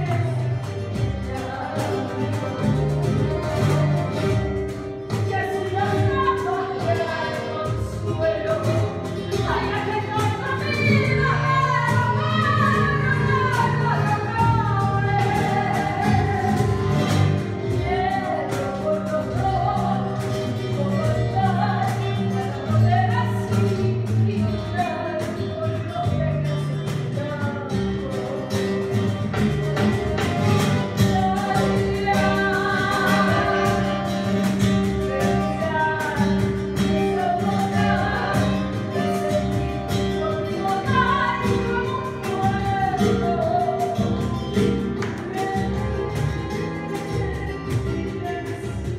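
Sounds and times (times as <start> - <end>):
acoustic guitar: 0.0 - 48.9
person singing: 30.6 - 48.9.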